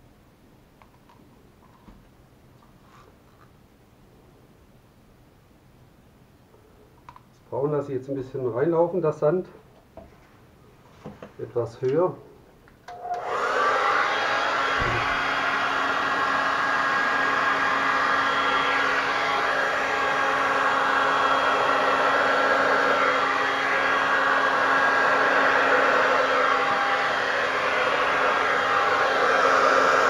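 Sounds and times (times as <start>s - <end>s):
hair dryer running: 12.9s - 30.0s
low bump: 14.7s - 15.3s.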